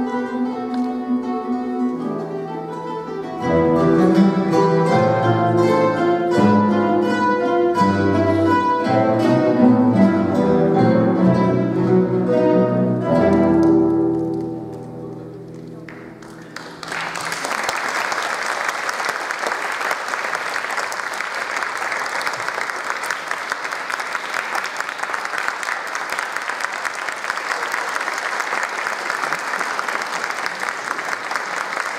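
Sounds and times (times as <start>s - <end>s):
guitar ensemble chord: 0.0s - 16.7s
audience applause: 15.1s - 31.9s.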